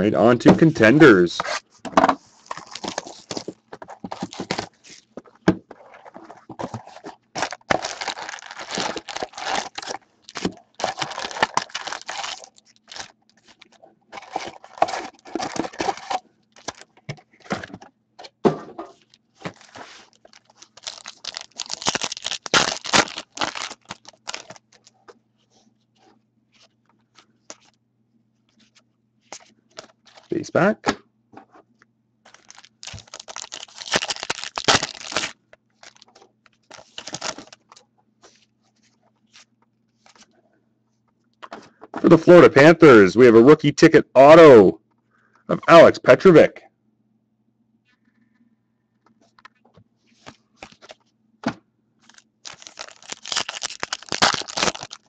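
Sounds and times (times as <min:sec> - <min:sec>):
plastic wrapping crinkling: 0:02.2 - 0:05.2, 0:05.9 - 0:16.9, 0:19.0 - 0:25.0, 0:32.3 - 0:37.8, 0:52.0 - 0:55.0.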